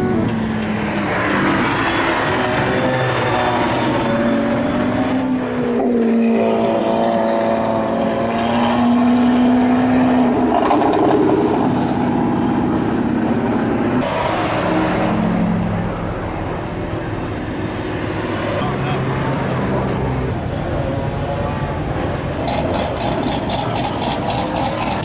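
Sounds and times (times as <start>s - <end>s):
sports car engines revving: 21.9s - 25.0s.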